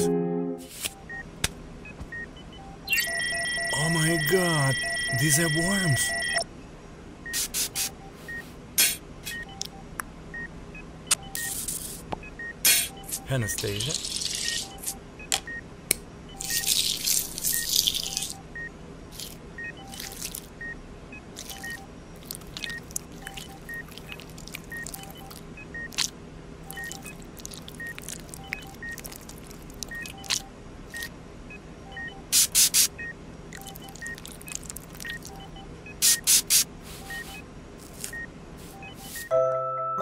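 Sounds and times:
low steady hum: 0:00.0 - 0:32.3, 0:33.0 - 0:36.0
electronic beeping: 0:02.1 - 0:06.5, 0:11.1 - 0:11.6, 0:16.3 - 0:18.7, 0:19.6 - 0:20.8, 0:21.4 - 0:21.9, 0:22.6 - 0:26.1, 0:26.7 - 0:27.2, 0:27.8 - 0:29.0, 0:29.9 - 0:31.1, 0:31.8 - 0:32.3, 0:33.0 - 0:36.4, 0:37.0 - 0:37.4, 0:38.1 - 0:39.4
wet squishing of fruit: 0:19.2 - 0:20.5, 0:21.4 - 0:30.4, 0:33.6 - 0:35.4.

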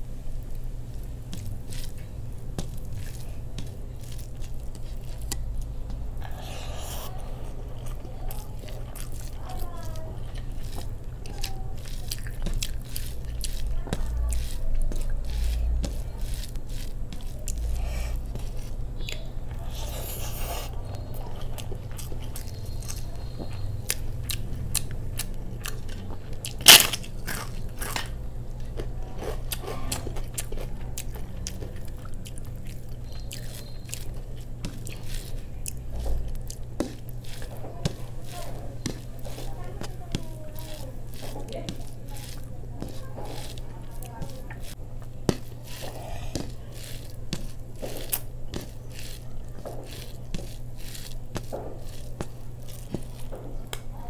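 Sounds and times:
chewing and mouth sounds: 0:00.4 - 0:54.0
sharp crack: 0:26.6 - 0:27.1.

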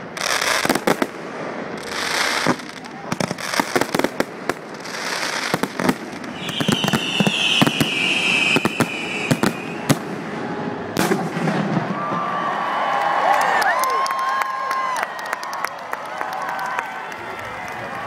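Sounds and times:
fireworks crackle: 0:00.0 - 0:12.2
fireworks bursts and bangs: 0:00.0 - 0:12.4
shrill whistling firework: 0:04.8 - 0:12.6.

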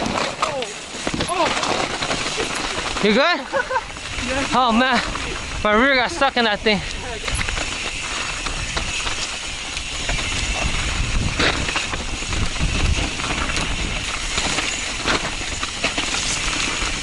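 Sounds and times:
bike knocks and rattles: 0:00.0 - 0:05.6, 0:07.1 - 0:17.0
tyre and trail rumble: 0:00.0 - 0:17.0
wind rushing over microphone: 0:03.7 - 0:17.0.

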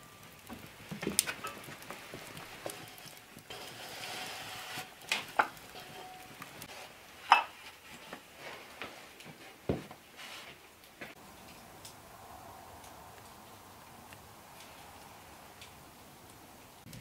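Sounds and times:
earthenware cups clinking: 0:07.2 - 0:07.6.

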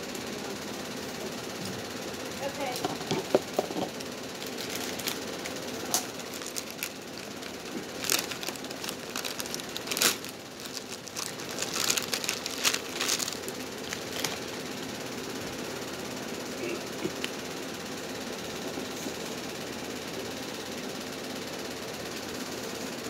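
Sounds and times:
paper napkin rustling: 0:04.5 - 0:05.3, 0:06.1 - 0:14.5.

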